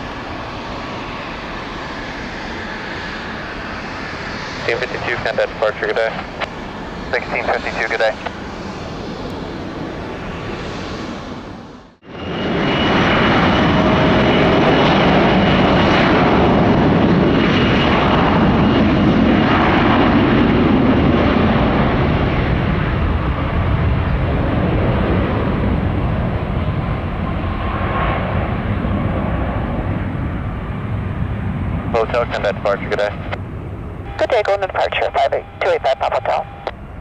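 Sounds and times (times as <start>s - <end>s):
jet engine roar: 0.0s - 37.0s
faint high whine: 34.0s - 37.0s.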